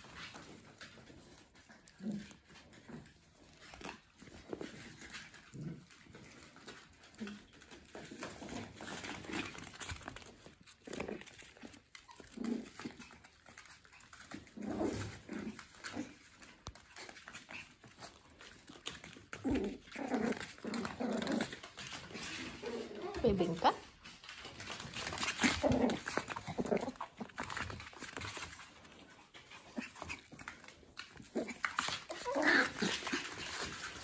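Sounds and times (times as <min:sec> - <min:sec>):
puppy growls and yips: 0:14.1 - 0:23.3, 0:24.9 - 0:28.2, 0:28.9 - 0:34.0.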